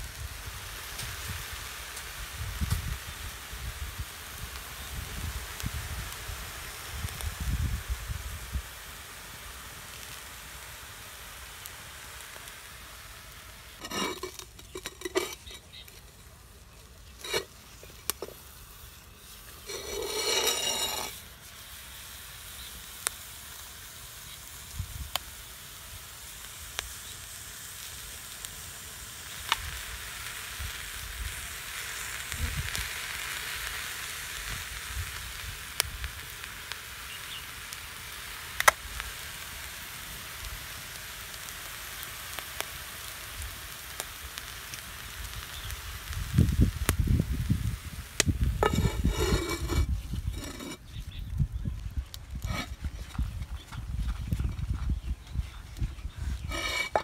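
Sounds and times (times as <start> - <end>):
chicken sizzling on salt: 0.0 - 57.0
sharp crackles: 9.9 - 57.0
clay lid scraping: 13.8 - 16.3, 17.2 - 18.4, 19.6 - 21.2, 48.6 - 50.8, 52.5 - 53.1, 56.5 - 57.0.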